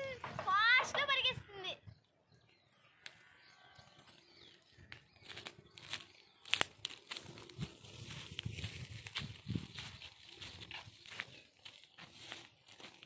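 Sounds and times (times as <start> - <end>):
dry grass and leaves rustling: 4.2 - 13.0.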